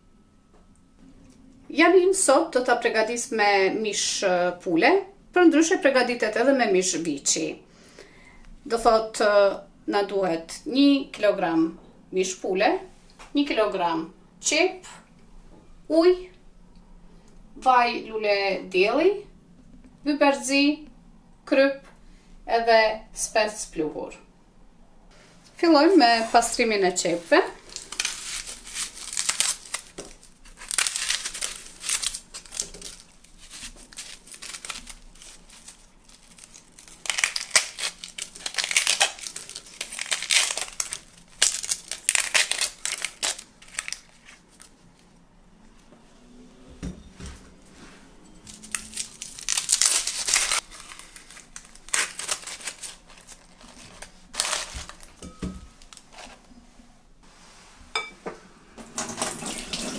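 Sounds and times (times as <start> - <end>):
onion skins crackling and tearing: 26.2 - 44.8, 48.4 - 56.4.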